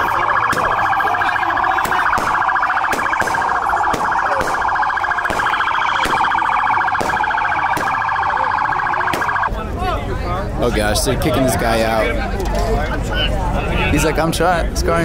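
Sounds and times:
electronic siren warbling: 0.0s - 9.5s.

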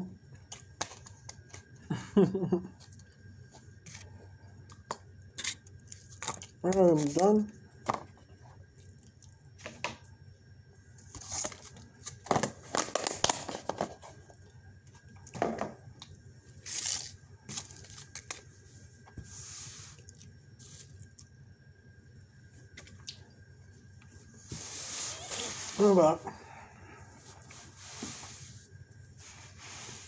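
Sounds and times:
rustling and crinkling: 24.0s - 26.0s.

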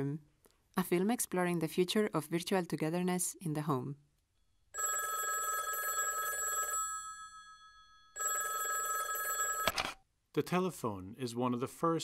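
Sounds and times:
rotary telephone bell ringing: 4.8s - 9.8s.

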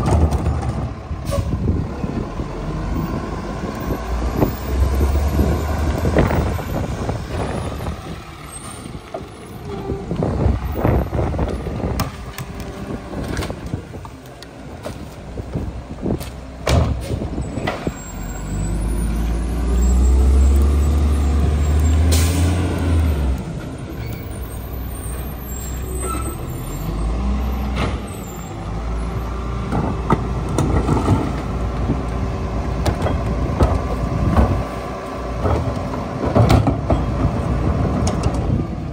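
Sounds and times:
clanks and knocks: 35.4s - 38.5s.

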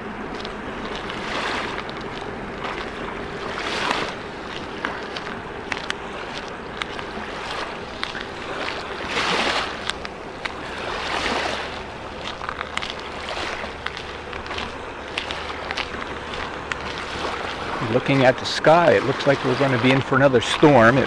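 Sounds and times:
vehicles passing: 0.0s - 21.0s
wind: 0.0s - 21.0s
tyres hissing on road: 11.6s - 21.0s.

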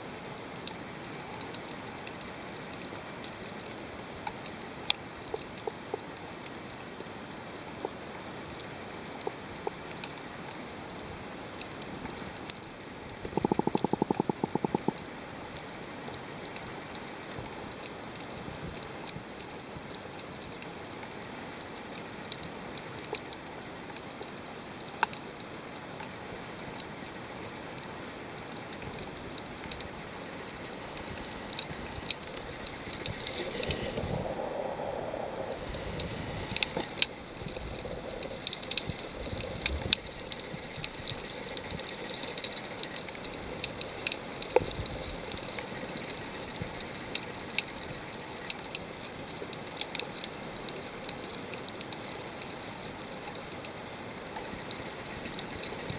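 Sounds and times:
snapping shrimp crackling: 13.1s - 15.0s
underwater hiss: 30.2s - 42.7s.

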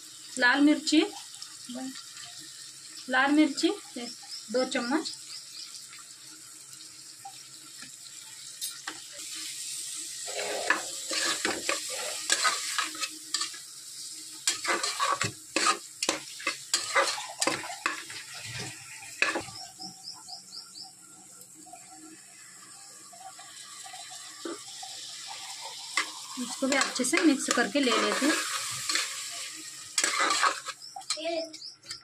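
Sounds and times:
masala sizzling in oil: 0.0s - 31.9s
metal spatula scraping a pot: 10.2s - 13.6s, 14.4s - 19.6s, 25.4s - 31.2s.

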